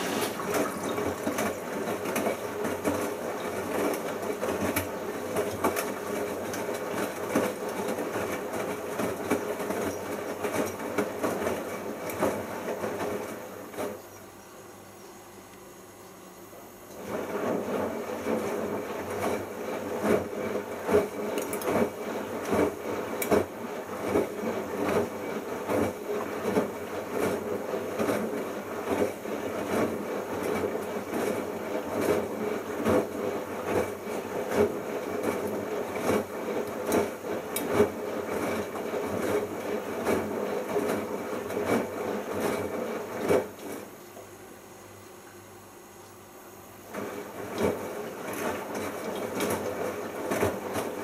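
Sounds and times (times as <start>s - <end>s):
laundry knocking and rubbing: 0.0s - 14.0s
washing machine drum turning: 0.0s - 14.0s.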